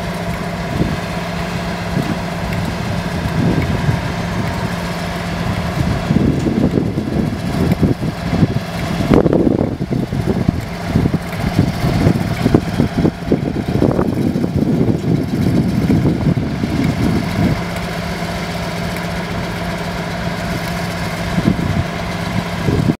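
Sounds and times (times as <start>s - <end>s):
diesel locomotive engine idling: 0.0s - 23.0s.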